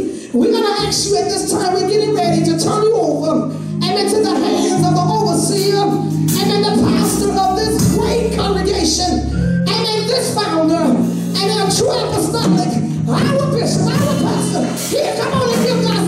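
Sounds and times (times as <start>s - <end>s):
instrumental accompaniment: 3.5s - 16.0s.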